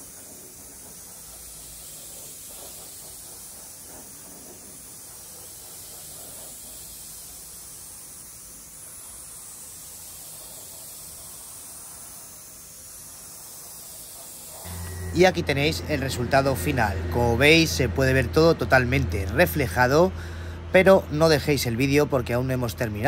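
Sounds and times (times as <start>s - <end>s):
spray gun hissing: 0.0s - 16.1s.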